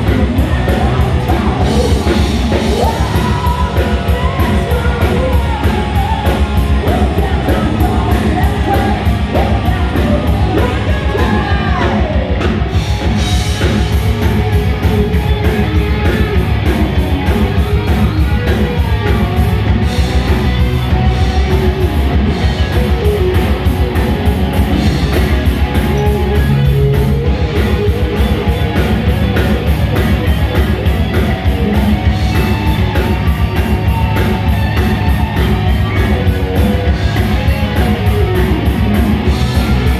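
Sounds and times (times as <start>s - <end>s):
person singing: 0.0s - 12.8s
heavy metal band playing: 0.0s - 39.9s.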